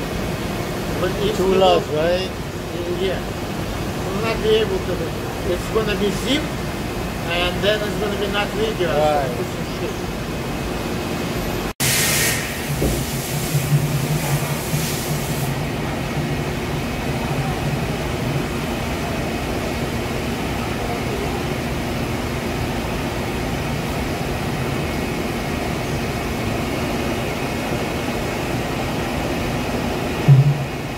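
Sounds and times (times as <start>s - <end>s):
machine tool humming and hissing: 11.8s - 30.9s.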